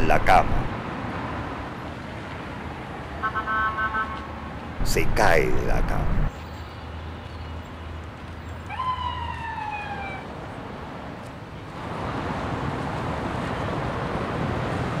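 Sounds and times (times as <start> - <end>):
city traffic engine drone: 0.0 - 15.0
siren wail: 8.7 - 10.3.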